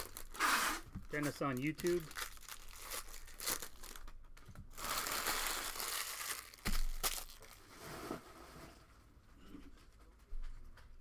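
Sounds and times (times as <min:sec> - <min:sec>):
foil pack crinkling: 0:00.0 - 0:07.6.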